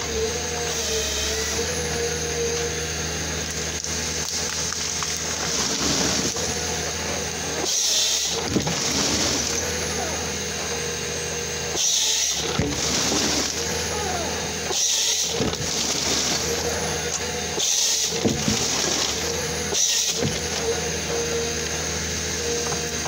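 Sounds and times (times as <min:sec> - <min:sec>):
harvester machine running: 0:00.0 - 0:23.0
hissing bursts of cutting: 0:11.4 - 0:15.4.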